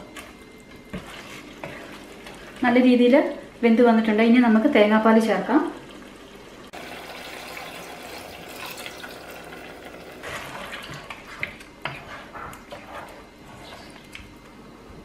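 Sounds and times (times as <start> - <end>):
liquid pouring into a pot: 6.8 - 10.2
wooden spatula stirring curry: 10.2 - 14.0.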